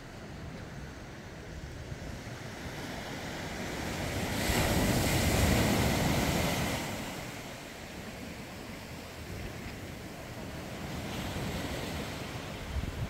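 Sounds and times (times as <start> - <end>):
sea surf washing: 0.0 - 13.0
wind on microphone: 0.0 - 13.0.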